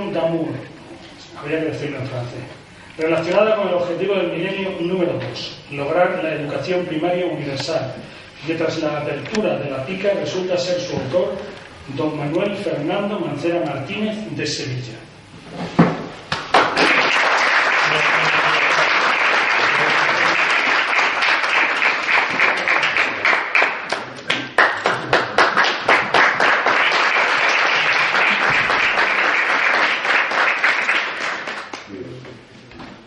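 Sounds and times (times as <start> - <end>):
audience applauding: 16.4 - 31.9.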